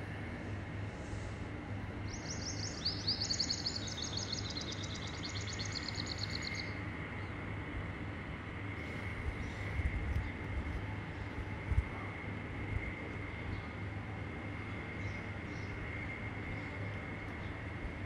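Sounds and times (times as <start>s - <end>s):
low hum and hiss: 0.0s - 18.0s
birds trilling: 2.1s - 6.8s.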